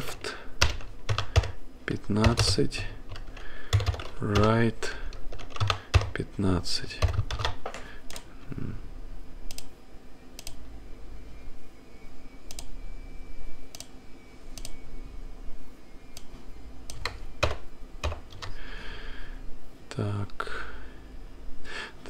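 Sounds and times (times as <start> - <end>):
computer keyboard typing: 0.6 - 6.2, 7.0 - 8.3, 16.9 - 18.6.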